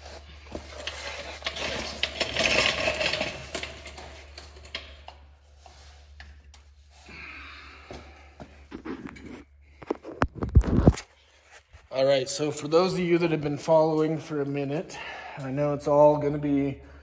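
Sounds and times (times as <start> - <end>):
scraping under a car: 0.0 - 7.2
tools and bolts clinking on metal: 0.5 - 5.2.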